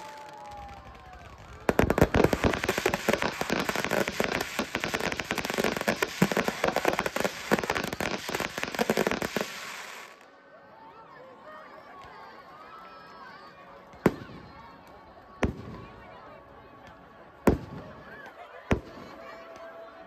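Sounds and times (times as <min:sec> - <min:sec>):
fireworks crackling: 0:00.0 - 0:10.3, 0:17.5 - 0:19.4.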